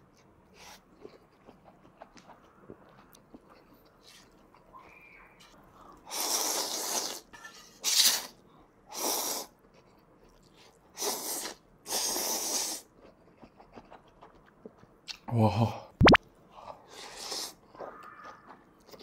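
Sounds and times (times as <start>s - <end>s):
person slurping noodles: 6.1s - 8.3s, 11.0s - 12.9s.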